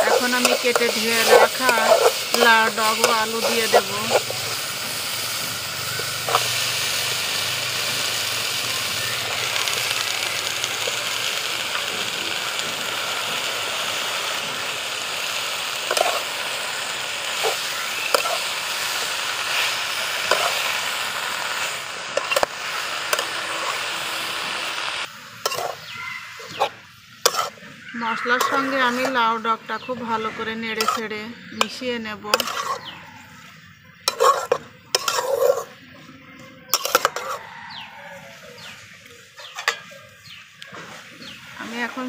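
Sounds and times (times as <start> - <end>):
metal spatula scraping pan: 0.0 - 5.3, 15.9 - 16.3, 17.3 - 18.5, 19.5 - 20.7, 22.2 - 22.5, 25.4 - 25.9, 26.5 - 29.3, 30.0 - 35.8, 36.7 - 37.7
paste sizzling in a pan: 0.0 - 35.8, 36.7 - 38.9.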